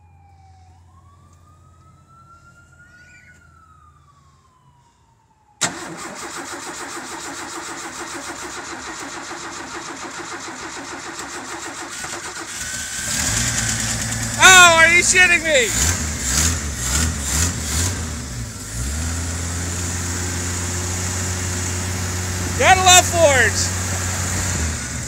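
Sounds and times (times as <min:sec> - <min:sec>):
faint siren: 0:00.0 - 0:05.6
engine starter cranking: 0:05.6 - 0:14.3.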